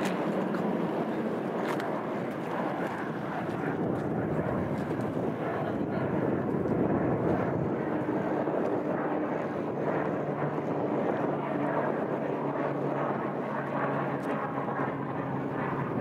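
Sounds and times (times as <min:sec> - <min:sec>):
turboprop engine drone: 0:00.0 - 0:16.0.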